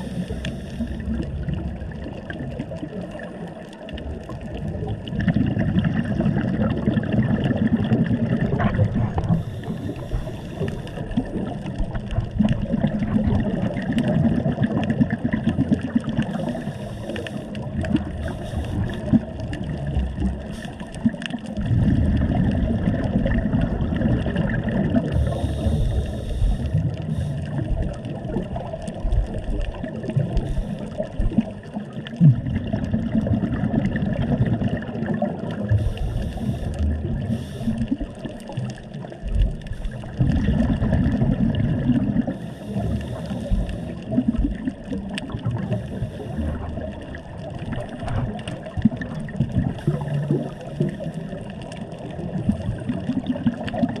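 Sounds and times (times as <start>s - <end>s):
diver breathing through regulator: 0.0s - 1.2s, 9.1s - 11.4s, 16.3s - 19.3s, 20.4s - 21.1s, 25.0s - 27.8s, 30.3s - 31.2s, 35.7s - 38.1s, 42.2s - 44.4s, 45.6s - 46.8s
underwater rumble: 0.0s - 54.0s.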